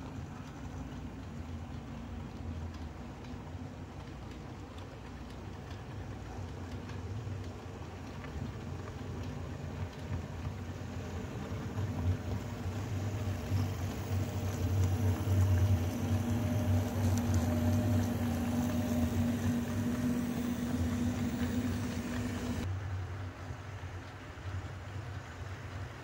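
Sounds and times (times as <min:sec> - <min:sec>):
model train motor hum: 0:11.0 - 0:22.7.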